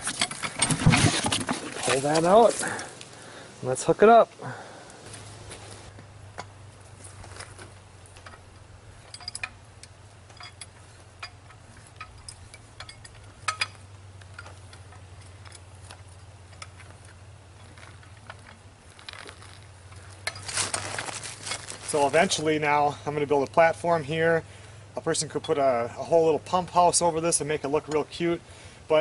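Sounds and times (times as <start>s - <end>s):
small metal clicks and ticks: 7.4s - 22.2s.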